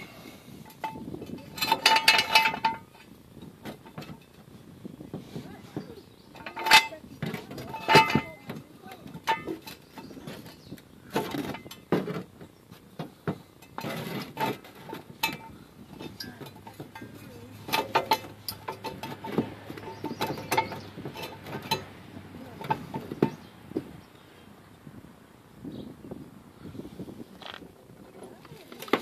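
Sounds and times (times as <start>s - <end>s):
scrapes and knocks: 0.0s - 24.0s, 27.4s - 29.0s.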